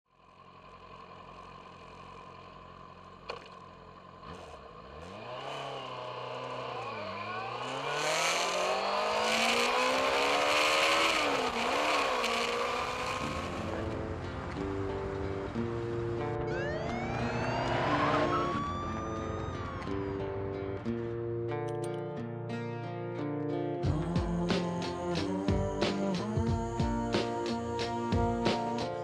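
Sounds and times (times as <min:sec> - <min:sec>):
motorcycle engine accelerating: 0:00.2 - 0:21.8.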